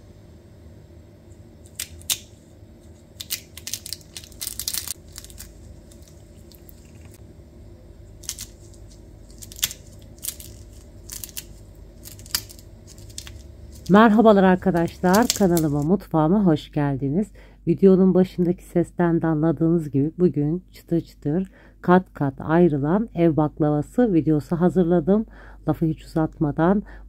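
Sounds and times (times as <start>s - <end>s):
pastry crunching: 1.6s - 7.2s, 7.8s - 15.9s.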